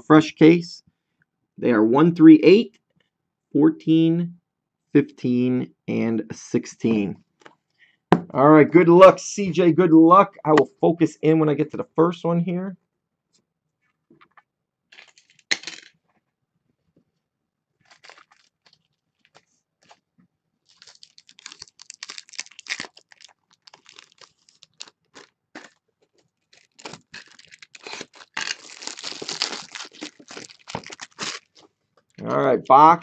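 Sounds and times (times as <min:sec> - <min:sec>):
plastic shrink wrap crackling: 0:17.8 - 0:32.2
loud plastic rustle: 0:20.7 - 0:25.8, 0:26.5 - 0:31.6.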